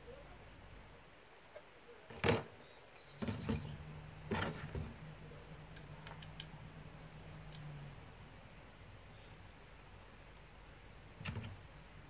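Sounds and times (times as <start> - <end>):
low steady hum: 0.0 - 12.0
faint ticks: 7.4 - 7.8.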